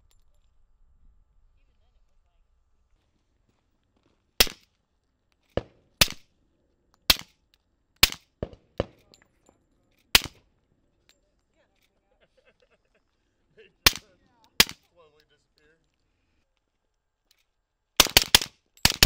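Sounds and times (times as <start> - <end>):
suppressed pistol shots: 4.4 - 4.6, 5.6 - 6.2, 7.1 - 7.3, 8.0 - 9.0, 10.1 - 10.4, 13.9 - 14.8, 18.0 - 19.0.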